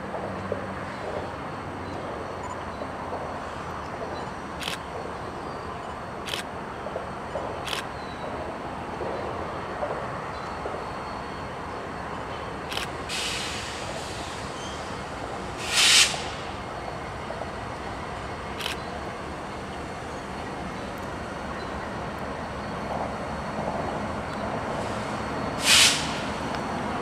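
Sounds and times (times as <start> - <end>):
diesel locomotives rumbling: 0.0 - 27.0
sharp clicks: 6.3 - 6.5
short hiss of air: 13.1 - 14.9, 15.6 - 16.6, 24.7 - 26.5.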